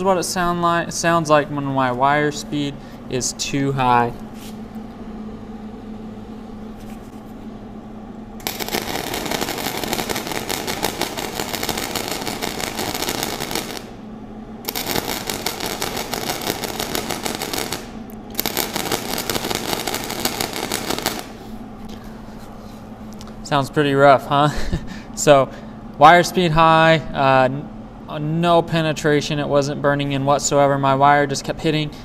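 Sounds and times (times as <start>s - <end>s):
steady hum: 0.0s - 32.0s
arc welding crackle: 8.4s - 14.0s, 14.6s - 21.6s.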